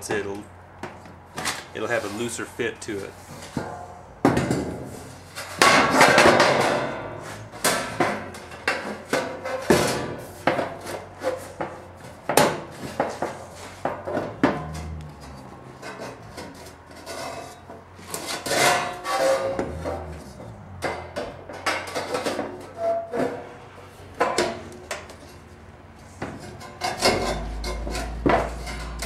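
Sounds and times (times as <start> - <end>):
sheet metal knocks and scrapes: 3.3 - 23.5, 26.2 - 29.0
sheet metal rattling wobble: 12.5 - 17.6, 18.4 - 22.8, 26.4 - 29.0.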